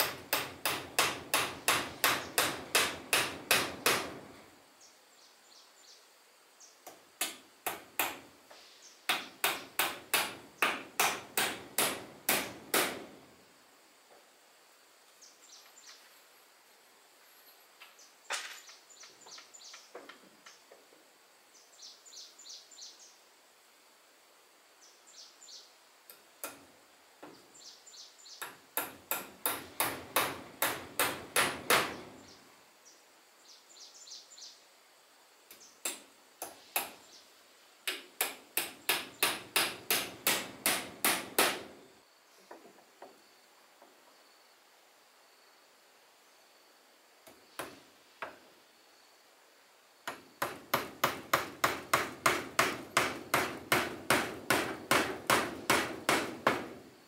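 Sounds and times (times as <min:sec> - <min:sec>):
hammer driving nails into wood: 0:00.0 - 0:04.3, 0:06.9 - 0:08.3, 0:09.1 - 0:13.2, 0:28.4 - 0:32.1, 0:35.8 - 0:37.0, 0:37.8 - 0:41.8, 0:50.1 - 0:56.8.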